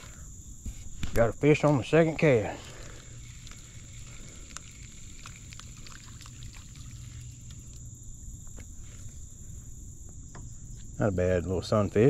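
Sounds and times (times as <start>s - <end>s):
faint low hum: 0.0s - 12.0s
insects droning: 0.0s - 12.0s
fishing reel ticking: 2.7s - 6.3s
small water splashes: 3.2s - 7.9s.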